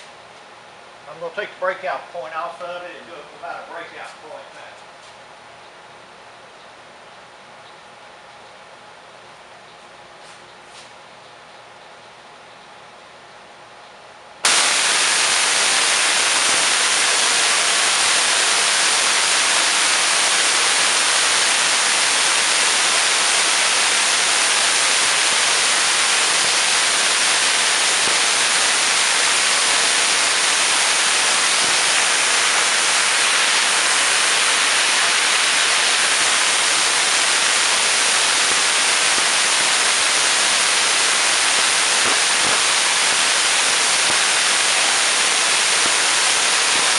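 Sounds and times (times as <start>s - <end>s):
tesla coil crackling hiss: 14.4s - 46.9s.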